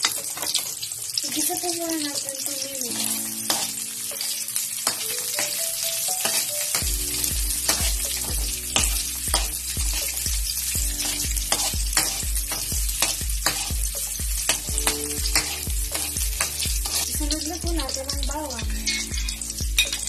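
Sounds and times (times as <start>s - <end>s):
onion sizzling in oil: 0.0s - 20.0s
metal spatula scraping a wok: 2.9s - 5.6s, 6.2s - 17.2s, 18.7s - 20.0s
background music with low beat: 6.8s - 20.0s.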